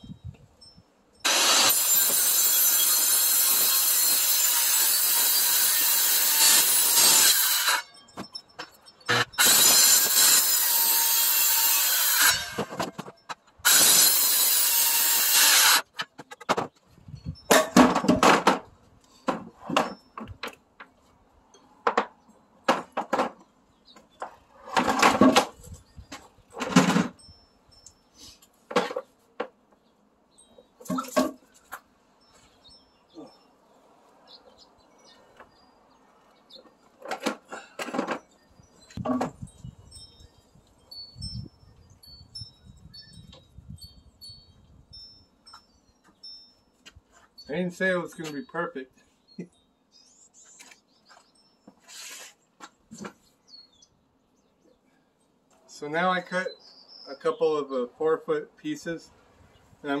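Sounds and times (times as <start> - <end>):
circular saw cutting wood: 1.3 - 7.9, 9.1 - 12.7, 13.6 - 15.9
wood knocks and thuds: 16.0 - 16.8, 17.5 - 20.6, 21.8 - 23.4, 39.0 - 39.5.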